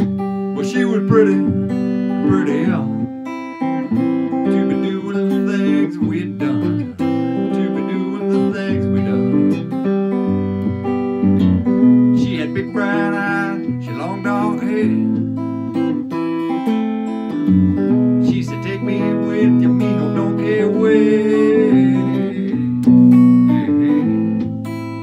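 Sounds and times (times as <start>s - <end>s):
acoustic guitar strumming: 0.0s - 25.0s
harmonica playing: 15.4s - 25.0s.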